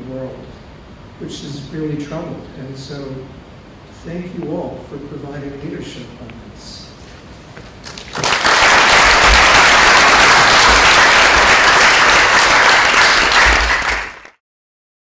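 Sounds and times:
audience applauding: 7.8 - 14.4.

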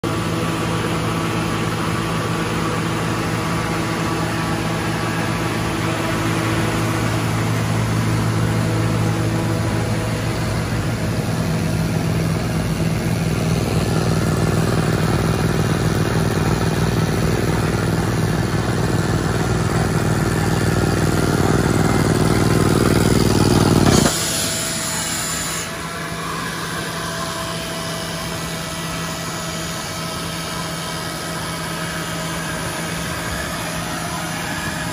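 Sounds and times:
diesel air compressor running: 0.0 - 34.9
pneumatic drill boring into rock: 22.1 - 25.8.

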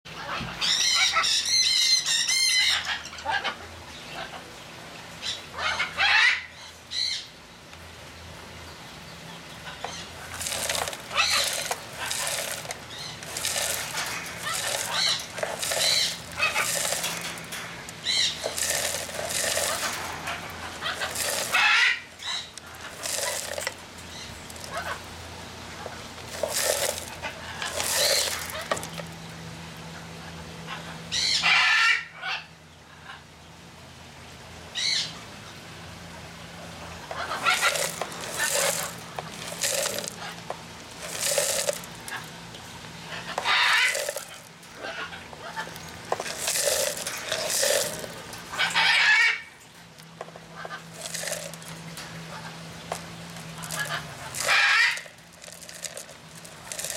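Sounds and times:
seeds rattling in plastic feeder: 10.2 - 25.0, 25.8 - 29.2, 37.1 - 42.4, 43.1 - 44.6, 45.4 - 49.4, 50.2 - 56.9.

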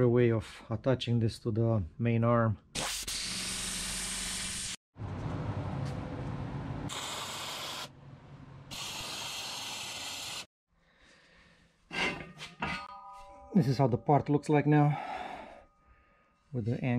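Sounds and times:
plasma cutter hissing: 2.8 - 4.8, 6.9 - 7.9, 8.7 - 10.5
welder sizzling: 2.8 - 4.8, 8.7 - 10.5.

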